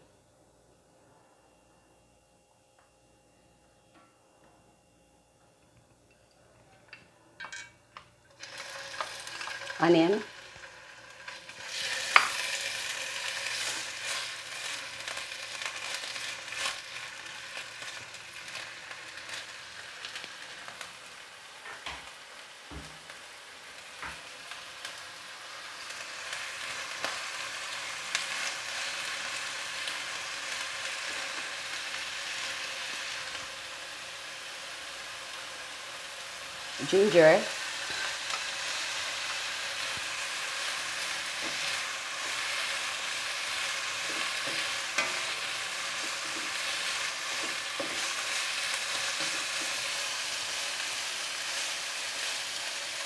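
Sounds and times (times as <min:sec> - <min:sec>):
onion sizzling in hot oil: 0:07.5 - 0:53.0
spatula scraping and tapping pan: 0:11.8 - 0:12.4, 0:44.0 - 0:48.2.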